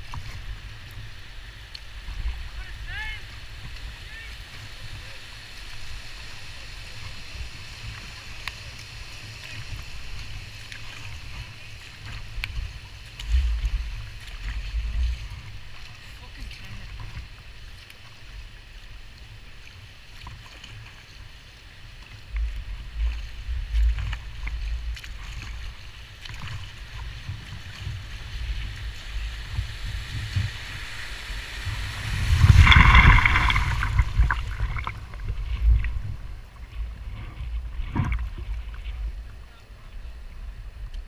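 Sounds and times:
paddle strokes splashing: 0:00.0 - 0:40.3
loud water splash: 0:26.2 - 0:36.5
gusty low rumble: 0:26.9 - 0:39.4.

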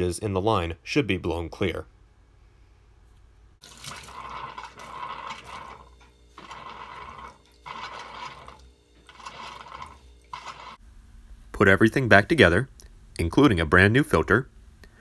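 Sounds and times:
oil spurting and splashing: 0:03.6 - 0:10.8.

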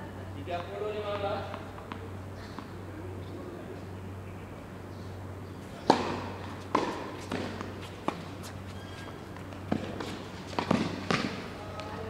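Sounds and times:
tennis ball bouncing: 0:00.5 - 0:02.7, 0:05.8 - 0:11.9
tennis ball struck by racket: 0:05.8 - 0:08.5, 0:09.6 - 0:11.5.

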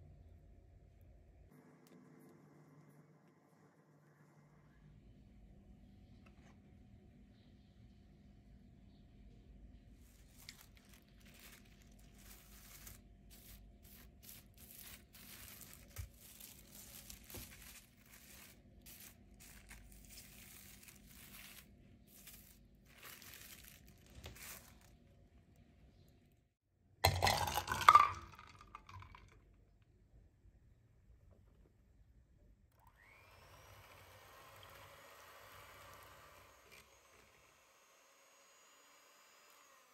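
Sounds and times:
cling film crinkling: 0:10.0 - 0:25.4.

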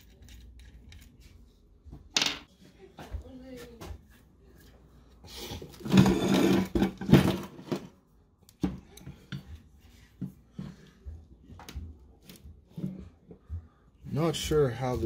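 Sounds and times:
metal parts rustling and scraping: 0:00.0 - 0:01.4.

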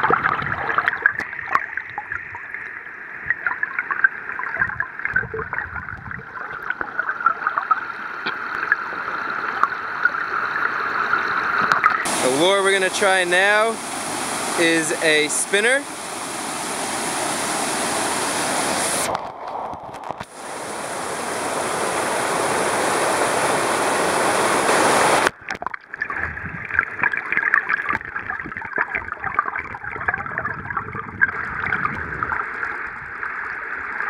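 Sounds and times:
muffled underwater gurgling: 0:00.0 - 0:13.8, 0:25.0 - 0:34.0
water rushing past camera: 0:10.3 - 0:34.0
small crackles and clicks: 0:19.1 - 0:20.3.

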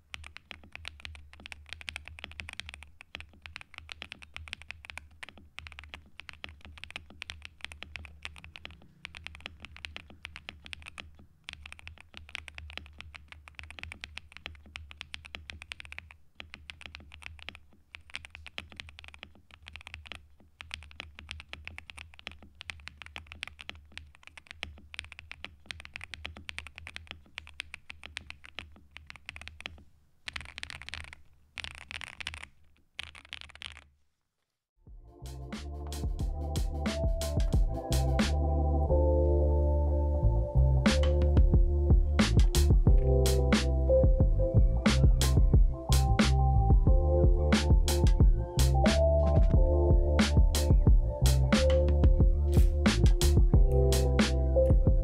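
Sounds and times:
mechanical keyboard typing: 0:00.0 - 0:33.9, 0:44.9 - 0:55.0.

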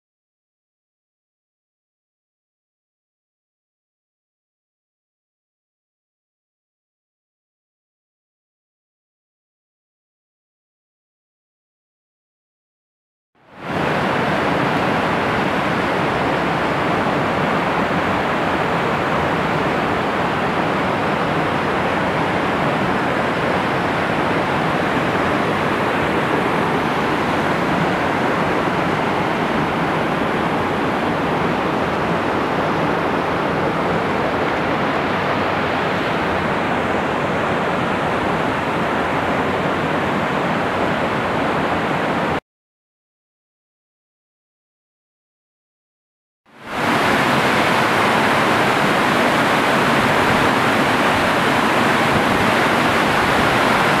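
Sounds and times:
waterfall rushing: 0:13.6 - 0:42.4, 0:46.6 - 0:54.0.

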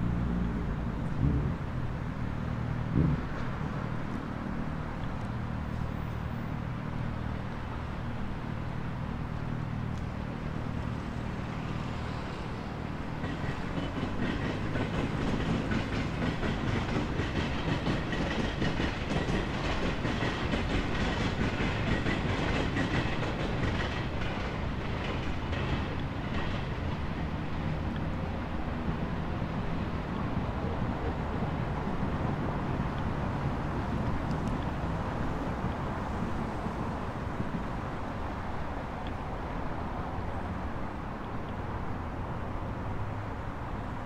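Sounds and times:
train wheels clattering on rails: 0:12.5 - 0:28.2.

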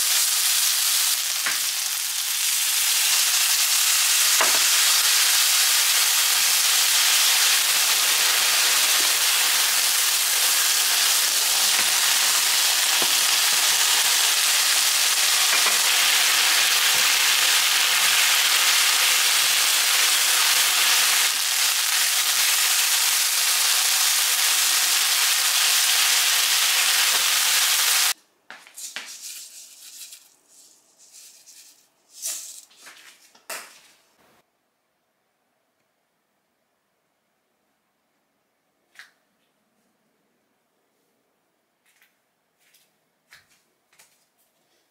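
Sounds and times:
vegetables sizzling in frying pan: 0:00.0 - 0:28.2.

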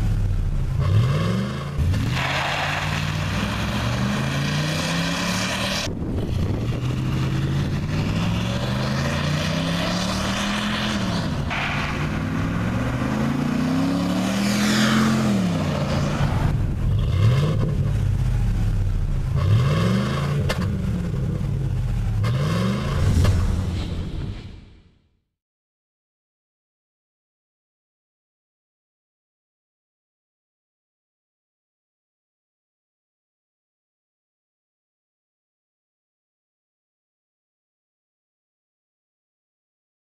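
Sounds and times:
truck engine accelerating hard: 0:00.0 - 0:24.4.

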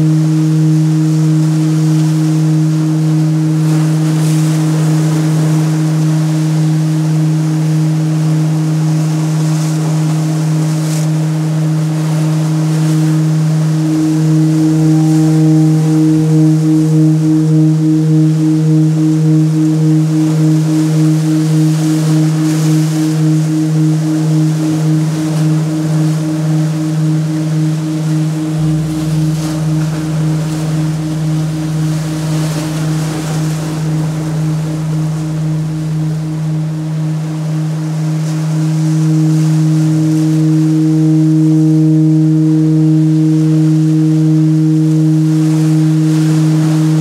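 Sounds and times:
gong low drone: 0:00.0 - 0:47.0
sea surf on rocks: 0:00.0 - 0:47.0
low rumble: 0:11.3 - 0:47.0
higher ringing tones: 0:11.8 - 0:47.0
slow pulsing beat: 0:12.8 - 0:47.0
waves breaking on rocks: 0:24.9 - 0:40.9.

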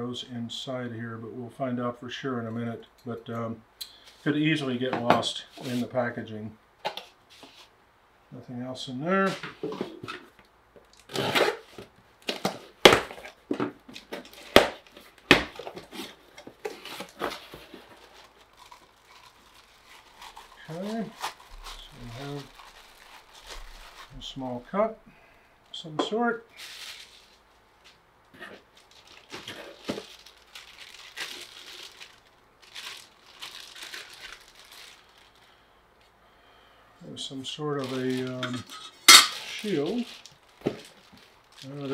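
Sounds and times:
plastic bag crinkling: 0:10.8 - 0:24.3, 0:26.5 - 0:35.6, 0:37.8 - 0:41.9
cardboard flaps rustling: 0:11.2 - 0:18.4.

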